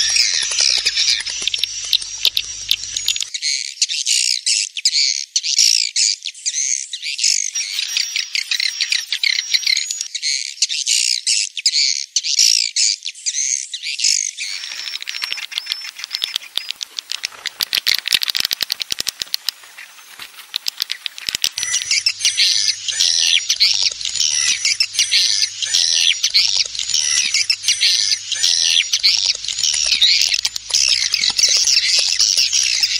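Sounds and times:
rapid fluttering clicking: 0:00.0 - 0:03.3, 0:14.5 - 0:32.9
swiftlet chirps and twitters: 0:00.0 - 0:03.3, 0:07.5 - 0:10.2, 0:14.4 - 0:32.9.

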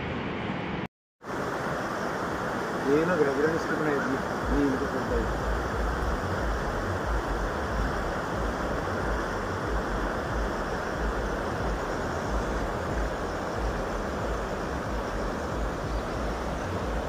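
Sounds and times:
river rushing: 0:00.3 - 0:17.0
wind buffeting microphone: 0:05.2 - 0:17.0.

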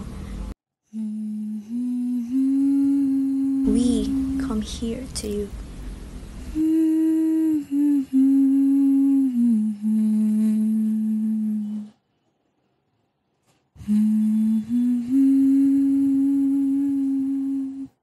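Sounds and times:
person humming slow tune: 0:00.9 - 0:05.5, 0:06.5 - 0:12.0, 0:13.8 - 0:18.0.

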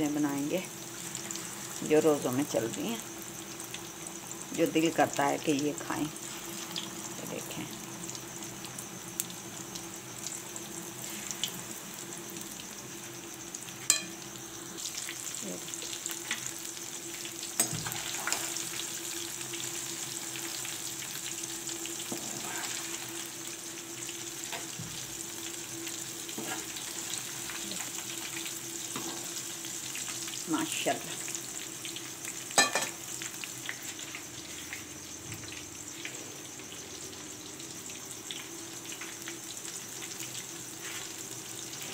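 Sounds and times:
deep-frying sizzle in oil: 0:00.0 - 0:41.9
metal spoon clinking on pan: 0:13.9 - 0:14.2, 0:32.6 - 0:32.9.

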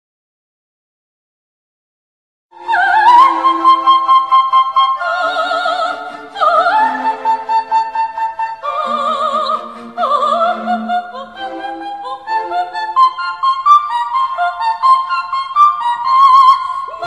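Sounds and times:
orchestral accompaniment: 0:02.6 - 0:14.9
operatic soprano singing: 0:02.6 - 0:17.0.

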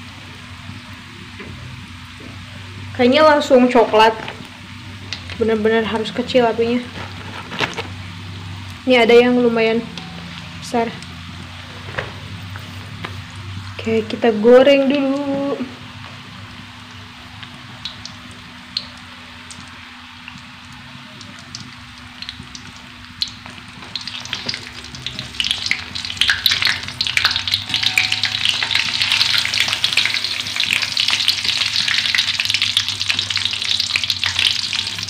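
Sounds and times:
fish frying in oil: 0:00.0 - 0:35.0
metal spatula stirring in wok: 0:24.5 - 0:32.2.

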